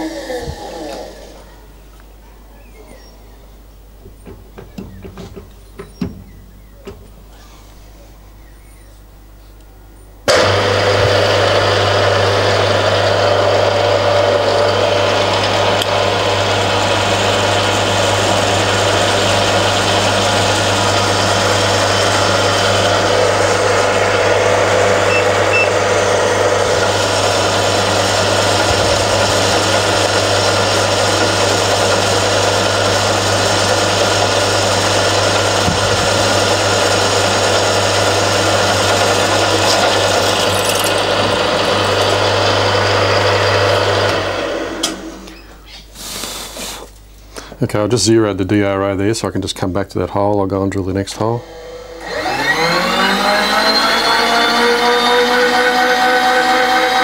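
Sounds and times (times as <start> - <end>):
drill cutting metal: 10.3 - 45.3, 51.2 - 57.0
milling machine motor hum: 10.3 - 45.3, 51.1 - 57.0.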